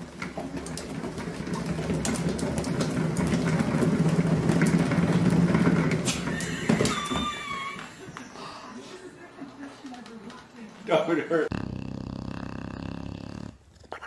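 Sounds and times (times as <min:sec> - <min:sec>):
cat exercise wheel rumbling: 0:00.0 - 0:07.9.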